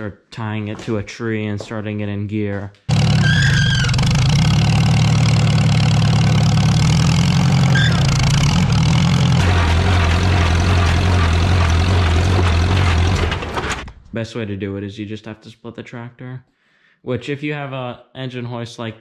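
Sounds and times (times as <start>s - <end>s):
tractor engine running: 2.9s - 14.1s.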